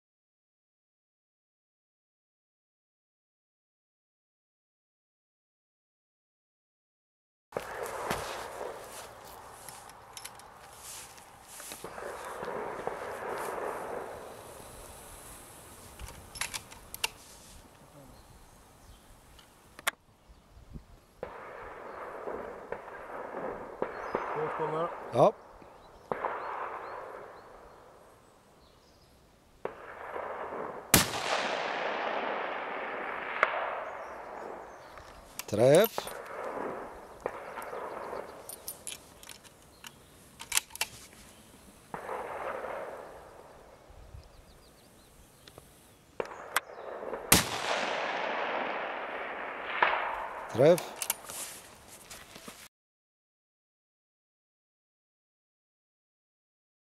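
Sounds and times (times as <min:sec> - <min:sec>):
rifle shot with echo: 0:07.6 - 0:09.5, 0:11.8 - 0:14.9, 0:21.2 - 0:25.3, 0:26.1 - 0:28.0, 0:29.6 - 0:34.9, 0:35.5 - 0:38.7, 0:41.9 - 0:43.8, 0:46.2 - 0:51.1
sharp crack: 0:07.6 - 0:17.2, 0:21.2 - 0:25.3, 0:26.1 - 0:27.4, 0:29.6 - 0:41.1, 0:41.9 - 0:43.6, 0:46.2 - 0:51.7.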